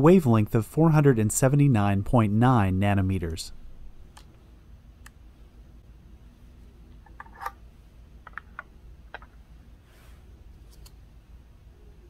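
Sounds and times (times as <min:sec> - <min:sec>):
soft rustle: 0:09.8 - 0:10.9.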